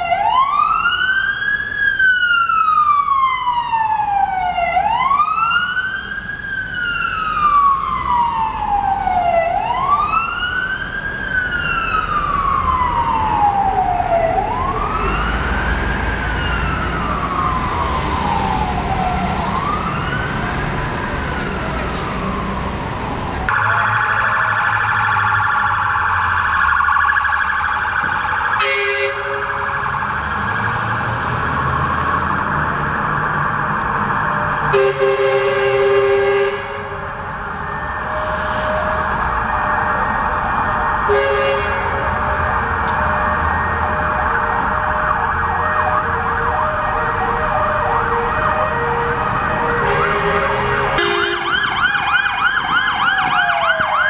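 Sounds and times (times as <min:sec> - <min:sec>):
fast yelp siren: 0:00.0 - 0:22.7, 0:23.4 - 0:54.0
wailing siren: 0:00.0 - 0:54.0
two-tone air horn blasts: 0:28.6 - 0:29.6, 0:34.7 - 0:36.9, 0:41.1 - 0:41.9, 0:49.8 - 0:51.5.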